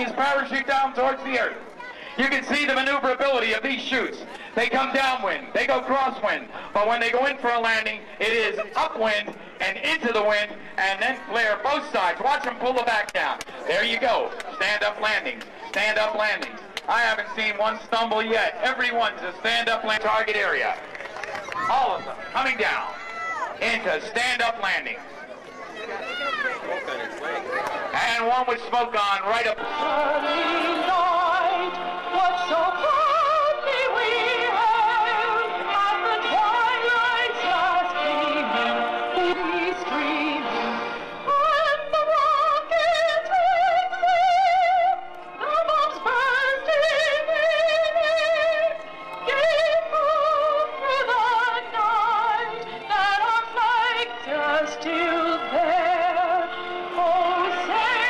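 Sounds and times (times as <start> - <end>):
person singing with vibrato: 29.4 - 58.0.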